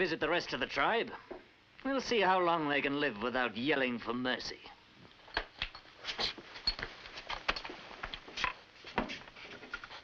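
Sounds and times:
footsteps on a wooden floor: 6.1 - 10.0.

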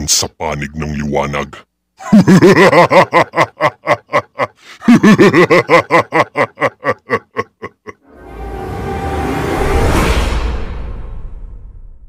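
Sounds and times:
sinister laugh: 2.0 - 8.0.

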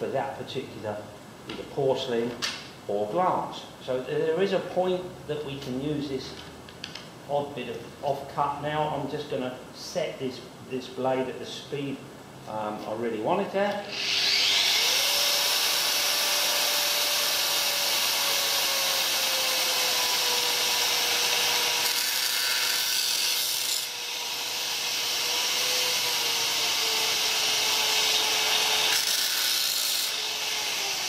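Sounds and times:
angle grinder motor whine: 13.9 - 15.0.

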